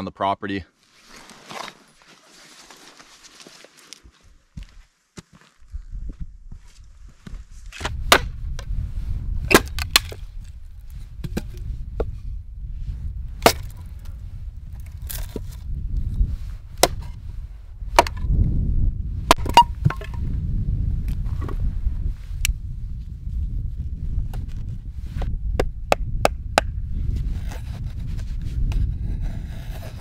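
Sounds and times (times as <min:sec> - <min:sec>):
dry wood snapping: 0:09.5 - 0:10.5, 0:13.4 - 0:14.1, 0:14.7 - 0:15.5.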